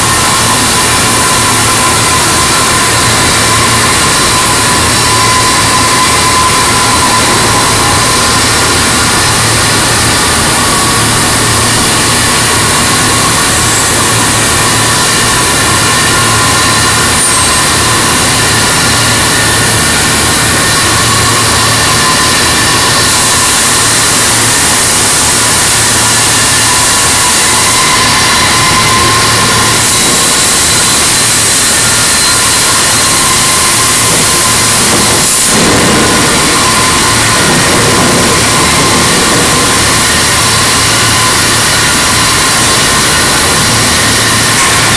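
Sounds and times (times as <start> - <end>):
crane mechanical drone: 0.0 - 44.9.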